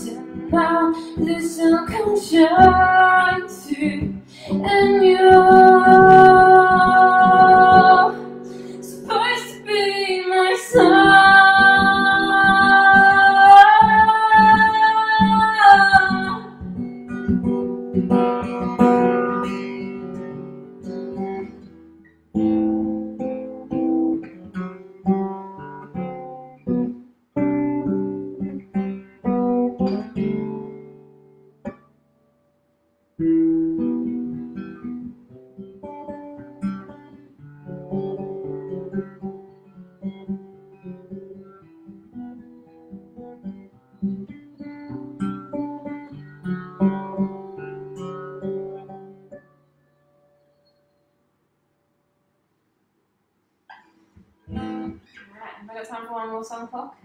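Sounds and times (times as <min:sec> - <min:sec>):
woman singing: 0:00.0 - 0:16.7
acoustic guitar: 0:00.0 - 0:52.8, 0:53.4 - 0:57.0.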